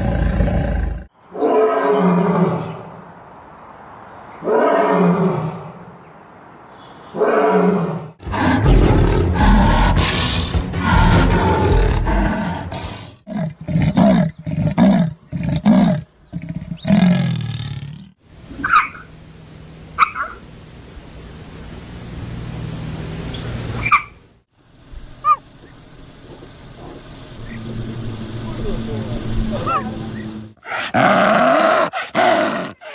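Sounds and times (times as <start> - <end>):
big cat roaring: 0.0 - 2.8, 7.2 - 18.2, 30.6 - 32.9.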